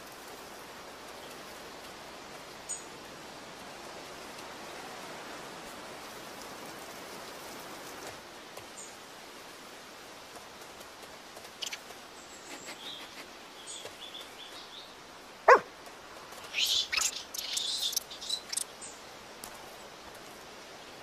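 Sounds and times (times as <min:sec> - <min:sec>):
soft steady hiss: 0:00.0 - 0:21.0
high bird chirps: 0:11.6 - 0:11.8, 0:16.5 - 0:18.7.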